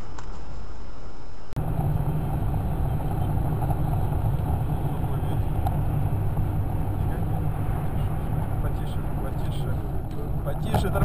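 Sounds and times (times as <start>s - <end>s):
car engine and tyre noise: 1.2s - 11.0s.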